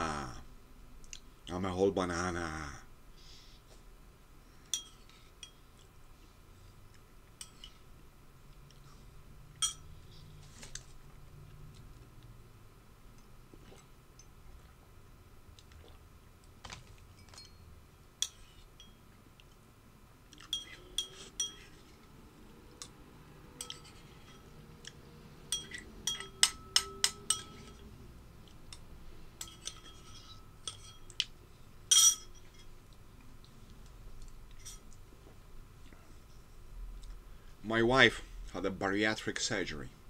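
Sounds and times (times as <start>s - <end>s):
dishes clinking: 9.6s - 9.9s, 17.1s - 19.0s, 20.4s - 21.9s, 23.6s - 24.5s, 25.5s - 27.9s, 29.4s - 31.2s, 31.9s - 32.8s.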